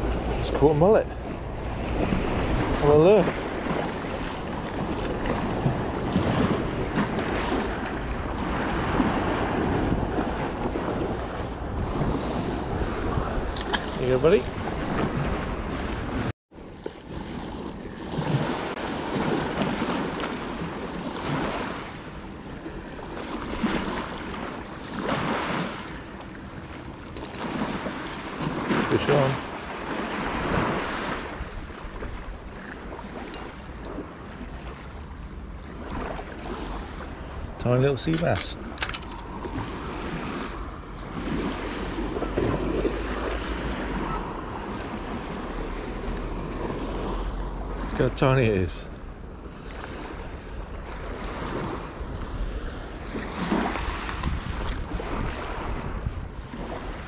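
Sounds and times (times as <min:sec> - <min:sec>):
wind on microphone: 0:00.0 - 0:16.3, 0:49.3 - 0:57.0
sea waves breaking: 0:00.0 - 0:57.0.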